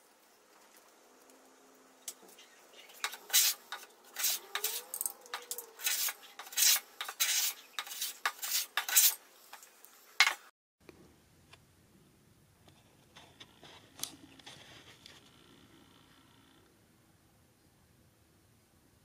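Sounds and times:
hand plane rasping on wood: 0:05.8 - 0:09.2.

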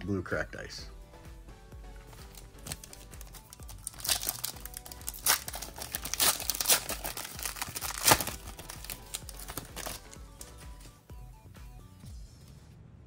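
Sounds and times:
plastic wrapper crinkling and tearing: 0:02.2 - 0:10.6.

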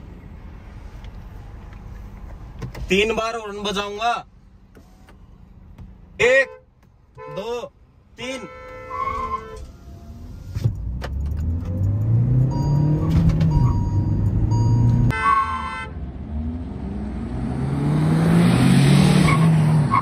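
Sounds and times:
car engine accelerating: 0:10.0 - 0:15.1, 0:16.0 - 0:20.0.

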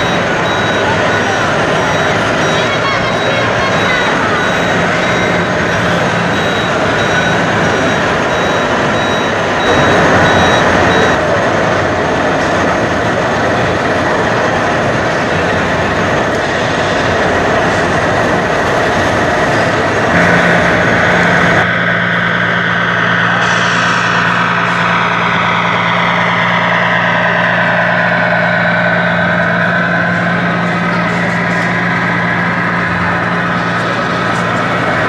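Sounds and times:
sliding high tones: 0:00.0 - 0:11.2
exhibition hall crowd noise: 0:00.0 - 0:35.0
model truck engine hum: 0:00.0 - 0:35.0.

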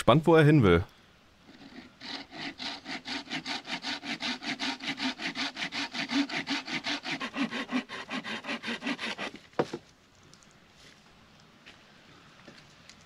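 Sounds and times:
hand saw cutting branch: 0:01.5 - 0:09.8.

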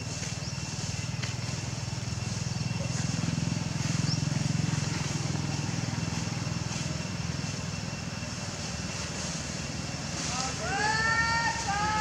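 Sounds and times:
motor engine running: 0:00.0 - 0:12.0.

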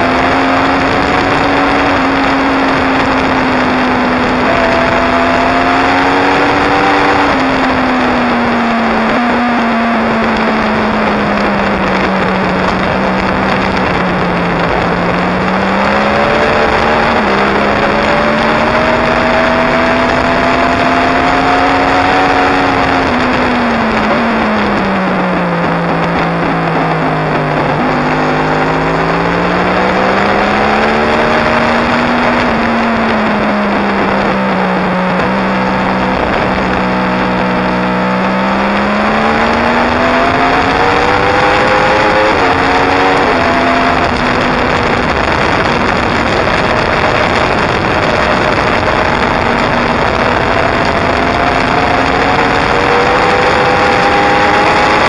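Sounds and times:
motorcycle engine revving: 0:00.0 - 0:55.0
wind rush: 0:00.0 - 0:55.0.

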